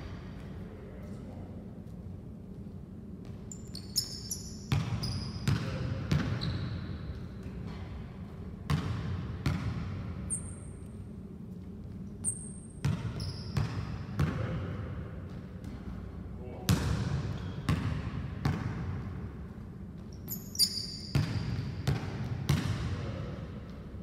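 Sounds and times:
sneaker squeaks: 3.2 - 7.8, 10.2 - 11.0, 12.1 - 14.2, 20.0 - 22.1
basketball bouncing on wooden floor: 4.7 - 6.6, 8.7 - 10.1, 12.8 - 14.6, 16.7 - 19.0, 20.0 - 23.0.

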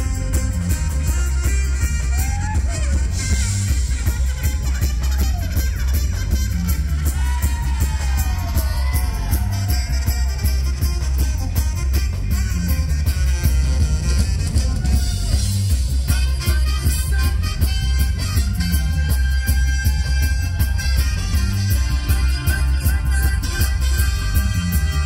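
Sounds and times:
heavy bass line: 0.0 - 25.0
live reggae-rock band: 0.0 - 25.0
person singing: 21.8 - 25.0.

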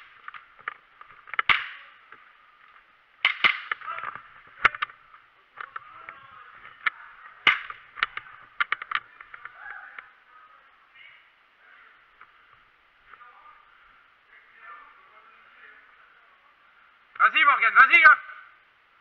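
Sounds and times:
airsoft gun shots: 1.4 - 1.9, 3.2 - 3.9.

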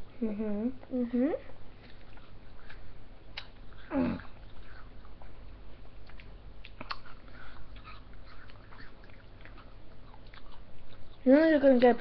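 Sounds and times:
steady low hum: 0.0 - 12.0
wet mouth smacks and sucks: 6.0 - 7.2.

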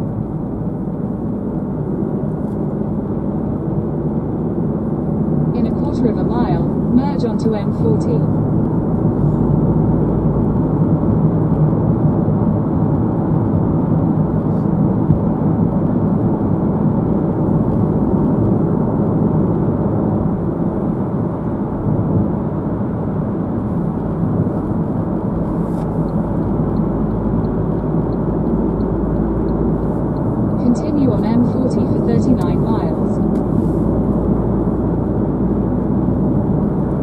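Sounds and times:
car cabin road rumble: 0.0 - 37.0
faint regular ticking: 25.9 - 32.8.

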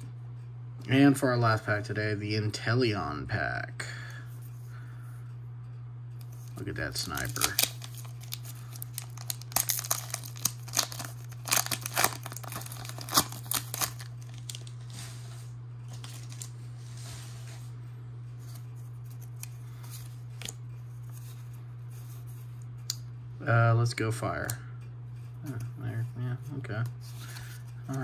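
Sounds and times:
cards rustling: 6.3 - 17.0, 27.0 - 28.0
foil pack crinkling and tearing: 6.9 - 15.2, 15.9 - 16.6.

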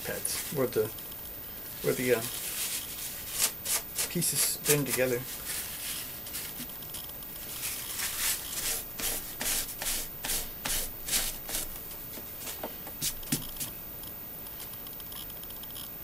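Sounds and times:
paper towel rubbed and crumpled: 1.8 - 6.7, 7.5 - 11.7.

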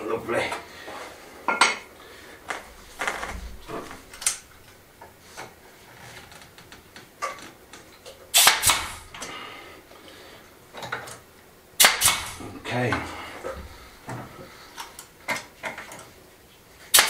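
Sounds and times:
nail gun shots: 8.4 - 9.2, 11.8 - 12.5.

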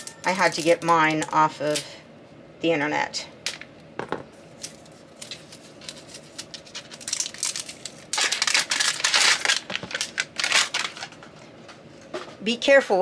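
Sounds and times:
plastic wrapper crinkling and tearing: 4.6 - 11.3.

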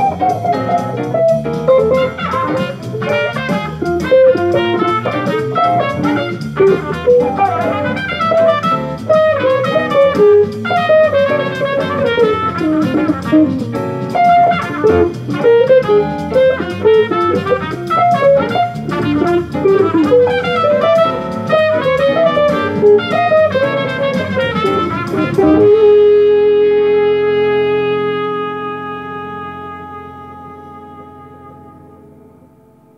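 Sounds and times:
electric guitar playing jazz lines: 0.0 - 32.9.

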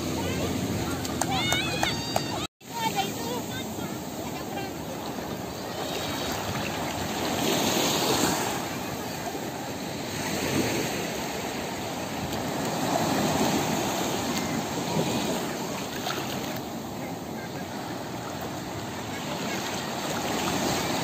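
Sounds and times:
small waves washing on shore: 0.0 - 21.0.

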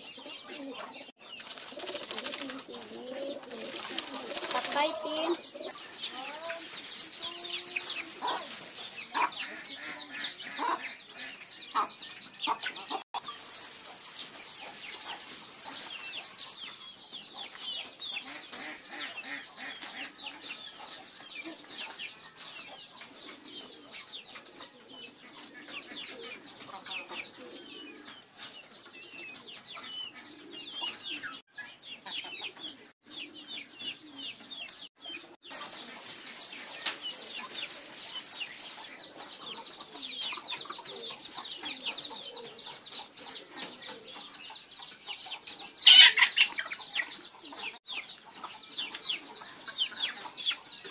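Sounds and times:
pigeons cooing: 0.0 - 10.8, 23.0 - 28.2, 29.0 - 31.4, 32.2 - 34.5, 36.6 - 50.9
many birds chirping: 0.0 - 50.9.

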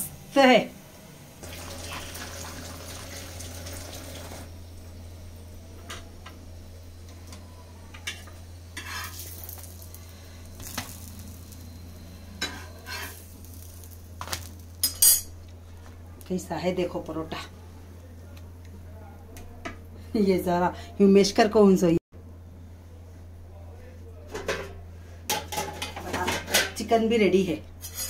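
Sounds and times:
steady low hum: 4.4 - 26.0.

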